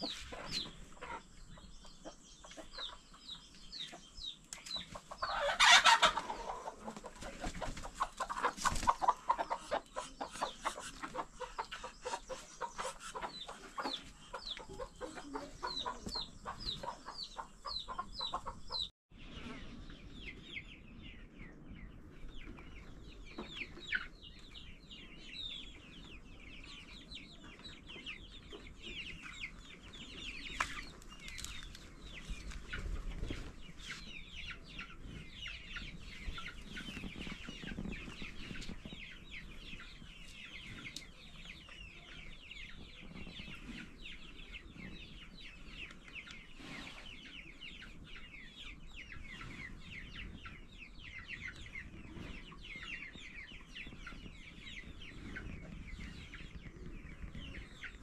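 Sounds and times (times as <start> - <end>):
chickens clucking: 0.0 - 58.0
chicken squawk: 5.2 - 7.0.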